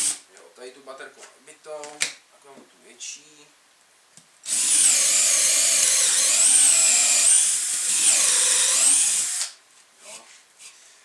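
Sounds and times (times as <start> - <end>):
cordless drill boring into wood: 4.5 - 9.6.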